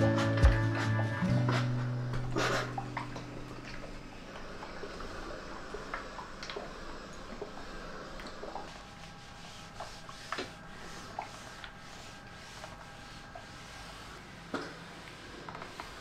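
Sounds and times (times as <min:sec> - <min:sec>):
iron rubbing over fabric: 0:08.4 - 0:16.0.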